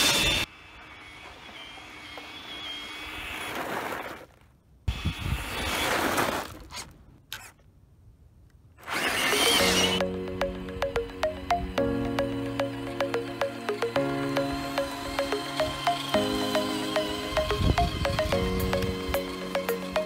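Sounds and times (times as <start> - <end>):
rc car electric motor whining: 0.0 - 4.3, 4.9 - 6.8, 8.8 - 10.0, 14.7 - 20.0.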